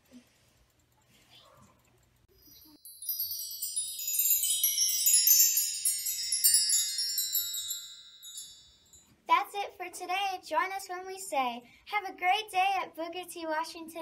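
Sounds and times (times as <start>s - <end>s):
wind chime ringing: 2.3s - 9.1s.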